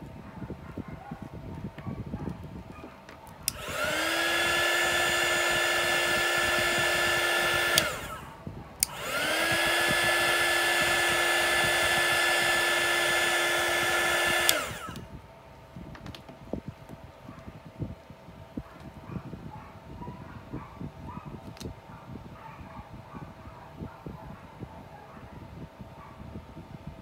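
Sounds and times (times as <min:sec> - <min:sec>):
heat gun fan whine: 0:03.2 - 0:19.4.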